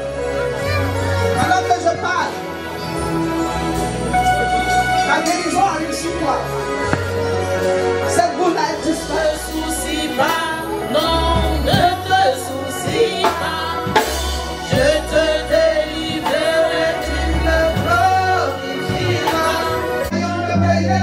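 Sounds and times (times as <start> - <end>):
person singing into a microphone: 8.7 - 21.0.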